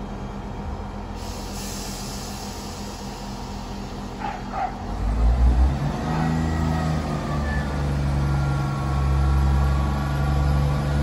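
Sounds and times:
train diesel engines running: 0:00.0 - 0:11.0
air hiss: 0:01.1 - 0:04.0.

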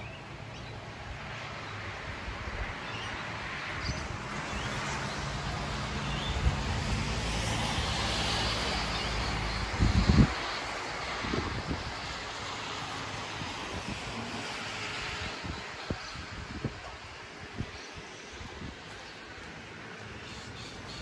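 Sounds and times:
rain: 0:00.0 - 0:21.0.

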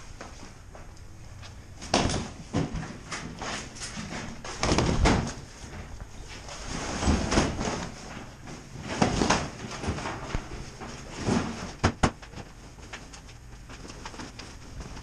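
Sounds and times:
nylon shelter rustling: 0:01.6 - 0:15.0.

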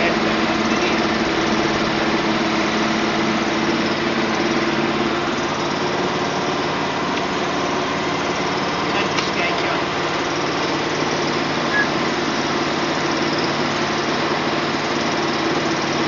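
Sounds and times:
small engine running: 0:00.0 - 0:16.0.

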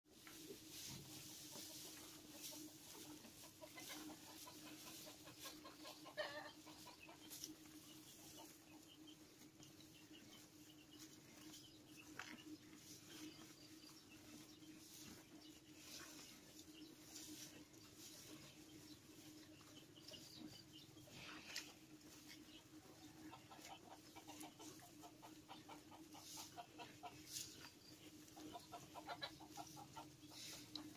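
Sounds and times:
chicken clucking: 0:00.1 - 0:30.9
cattle chewing straw: 0:10.4 - 0:20.2.

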